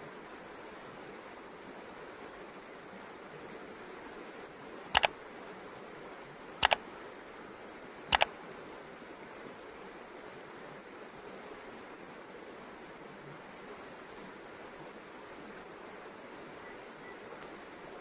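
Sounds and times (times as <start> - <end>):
shallow stream rushing: 0.0 - 18.0.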